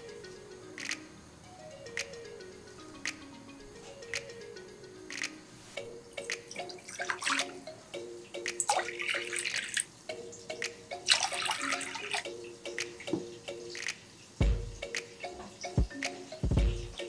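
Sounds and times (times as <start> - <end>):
soft background music: 0.0 - 17.0
water pouring into glass bowl: 8.7 - 9.9, 11.1 - 12.2.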